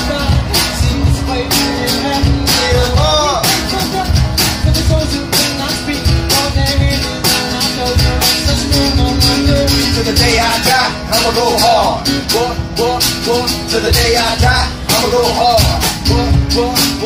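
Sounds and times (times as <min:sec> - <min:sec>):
music with percussive beat: 0:00.0 - 0:11.7
person singing: 0:00.0 - 0:17.0.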